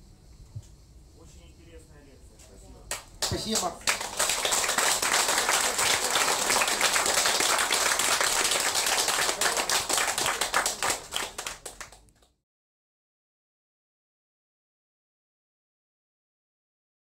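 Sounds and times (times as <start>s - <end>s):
audience applauding: 2.9s - 12.1s.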